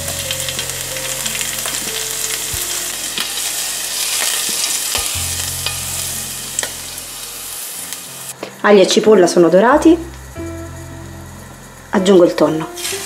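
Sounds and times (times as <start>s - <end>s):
oil sizzling in a pan: 0.0s - 13.0s
pan knocking on burner: 4.2s - 5.9s.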